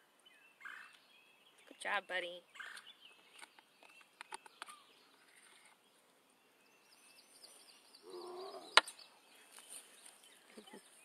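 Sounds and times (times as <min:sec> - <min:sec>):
bobcat growling: 0:08.0 - 0:08.8.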